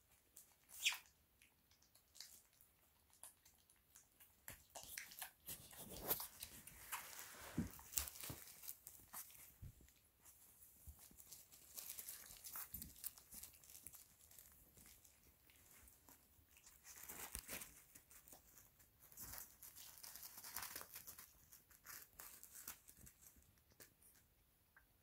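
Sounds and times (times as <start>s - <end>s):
faint rustling and crinkling: 0.0s - 25.0s
soft scuffles: 5.8s - 8.5s.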